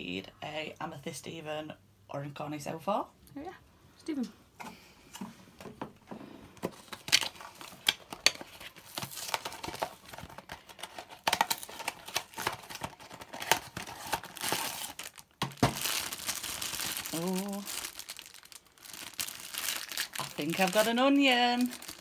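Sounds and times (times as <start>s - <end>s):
foil bag crinkling: 6.9s - 22.0s
cardboard box tearing: 11.1s - 16.1s.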